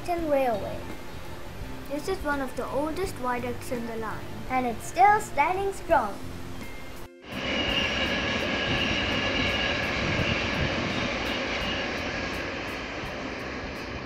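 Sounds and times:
train high whine: 6.6s - 14.0s
train rumble: 7.3s - 14.0s.

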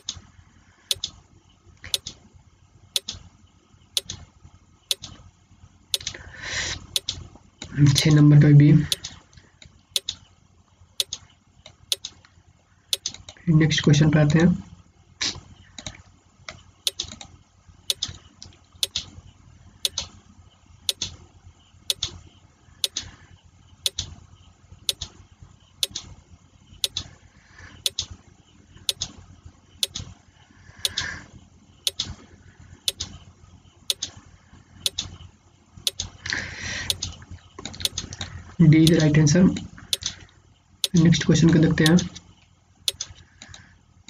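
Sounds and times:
countdown timer ticking: 38.8s - 39.0s, 40.8s - 41.0s.

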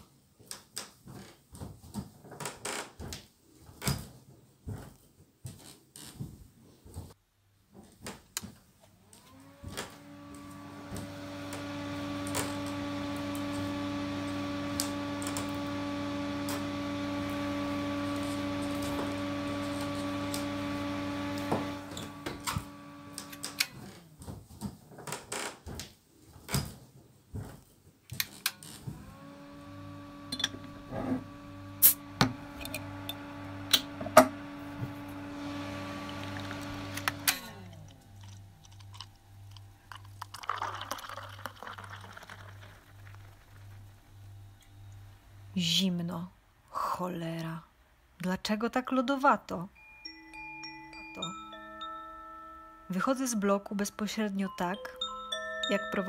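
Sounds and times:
small appliance motor humming: 9.0s - 24.1s, 28.2s - 45.5s.

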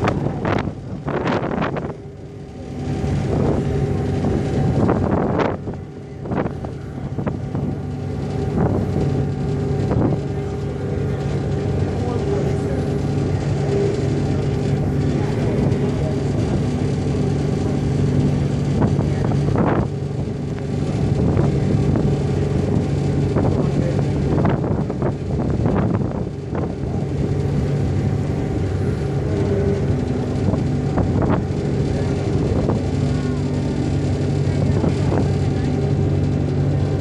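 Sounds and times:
ferry engine hum: 0.0s - 37.0s
wake rushing: 0.0s - 37.0s
wind: 0.0s - 37.0s.

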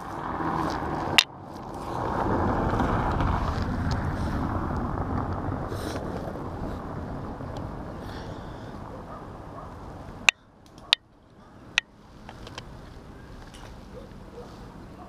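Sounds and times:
rope rustling: 0.0s - 4.6s
wind rumbling on microphone: 0.0s - 15.0s.

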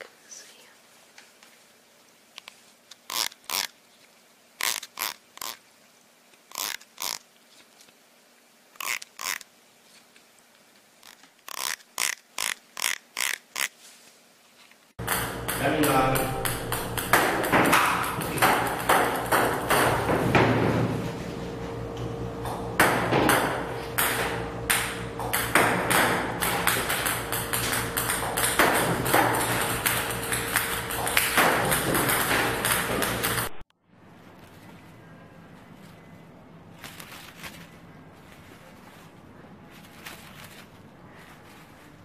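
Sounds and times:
table tennis balls bouncing: 15.0s - 21.1s, 22.4s - 33.6s
steady hum: 15.0s - 42.0s.

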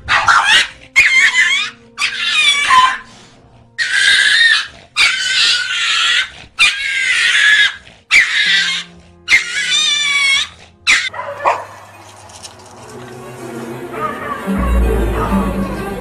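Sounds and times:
faint background music: 0.0s - 16.0s
animal squealing cries: 0.1s - 3.1s, 3.8s - 11.1s, 13.9s - 14.8s.

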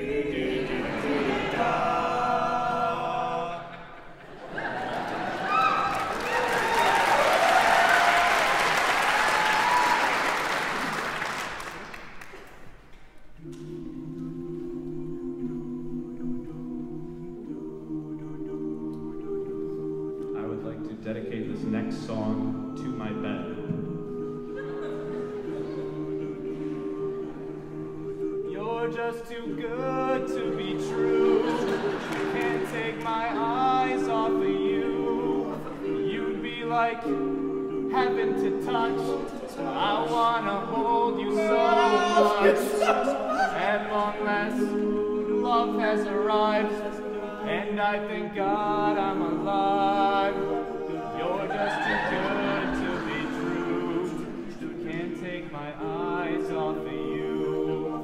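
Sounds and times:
audience applause: 4.5s - 12.7s, 31.4s - 32.8s
male a cappella chord: 13.4s - 58.0s.

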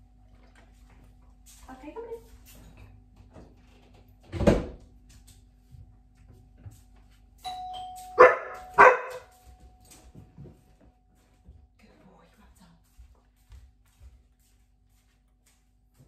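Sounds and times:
doorbell chime: 7.4s - 11.4s
dog barking: 8.2s - 9.3s.

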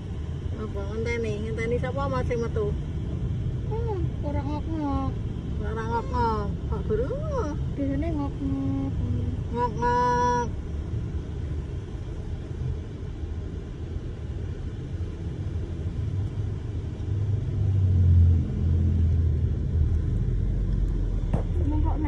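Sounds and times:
car cabin rumble: 0.0s - 22.0s.

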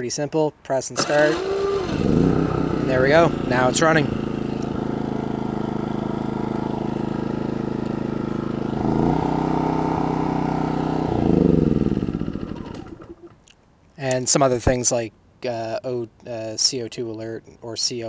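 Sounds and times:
generator engine running: 1.0s - 13.4s.

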